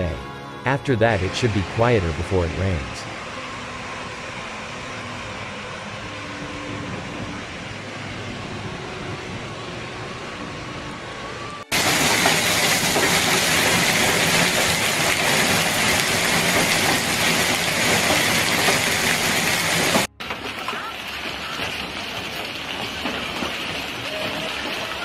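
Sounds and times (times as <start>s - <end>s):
hail and rain on car: 11.7s - 25.0s
heavy hail on pavement: 11.7s - 25.0s.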